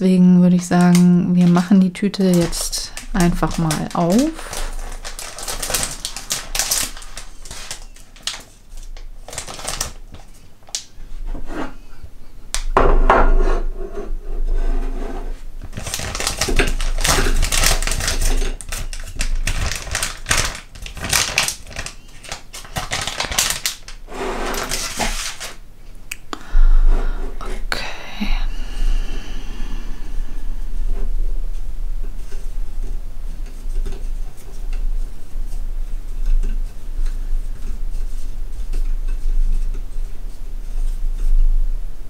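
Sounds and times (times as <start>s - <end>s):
plastic candy bag crinkling: 0.6s - 10.9s, 15.6s - 25.6s.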